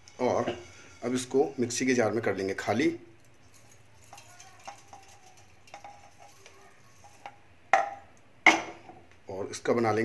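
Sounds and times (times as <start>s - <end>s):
seeds ticking into metal jar: 3.2s - 7.4s.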